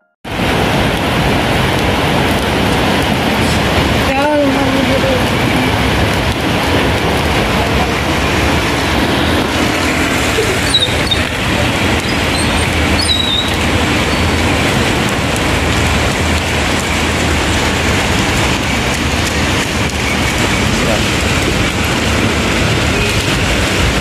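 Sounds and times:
heavy rain on pavement: 0:00.2 - 0:24.0
traffic hum: 0:00.3 - 0:24.0.

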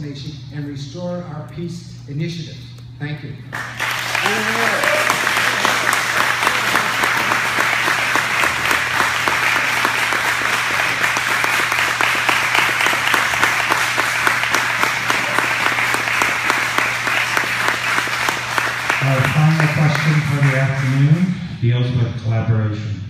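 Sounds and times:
audience applauding: 0:03.5 - 0:21.3.

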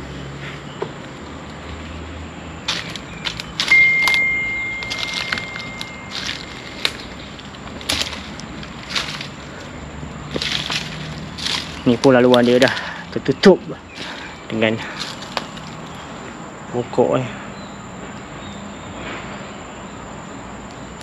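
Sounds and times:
footsteps on dry leaves: 0:02.6 - 0:16.4
high ringing tone: 0:03.6 - 0:08.2.

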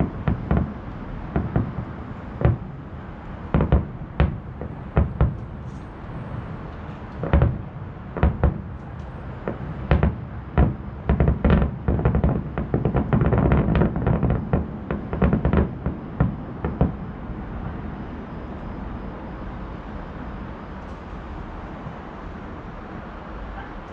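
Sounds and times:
fireworks bangs: 0:00.0 - 0:17.8
continuous rumble: 0:00.0 - 0:23.9.

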